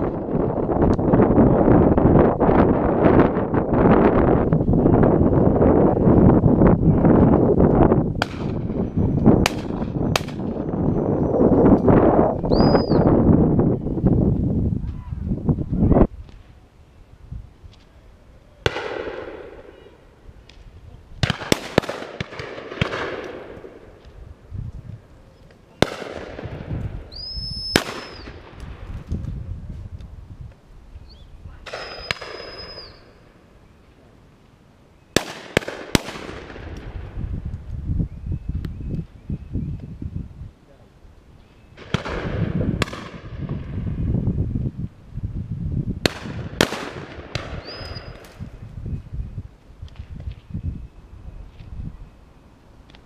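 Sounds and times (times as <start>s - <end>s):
steady high whistle: 12.5s - 13.2s, 27.1s - 28.3s, 31.8s - 33.2s
shotgun shots with echo: 18.6s - 19.7s, 21.2s - 23.6s, 25.8s - 26.6s
shotgun shots: 18.6s - 19.8s, 21.2s - 23.8s, 25.8s - 26.7s, 27.7s - 28.6s, 31.6s - 32.9s, 35.2s - 36.8s, 46.0s - 48.2s.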